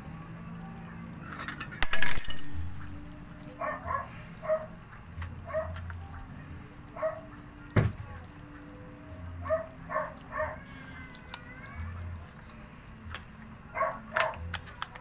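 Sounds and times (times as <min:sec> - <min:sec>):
dog yipping: 0:03.5 - 0:04.8, 0:05.4 - 0:05.8, 0:07.0 - 0:07.4, 0:09.4 - 0:10.7, 0:13.8 - 0:14.4
chicken simmering: 0:06.1 - 0:13.6.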